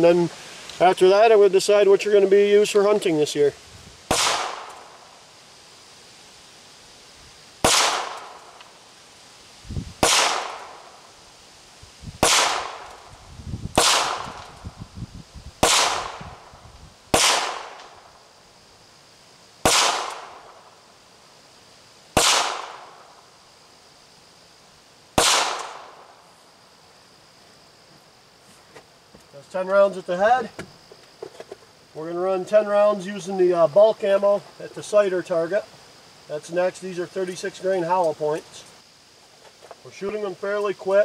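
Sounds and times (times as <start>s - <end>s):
pistol shots with echo: 4.1s - 4.9s, 7.6s - 8.4s, 10.0s - 10.8s, 12.2s - 12.9s, 13.8s - 14.4s, 15.6s - 16.2s, 17.1s - 17.8s, 19.6s - 20.5s, 22.2s - 23.0s, 25.2s - 26.0s.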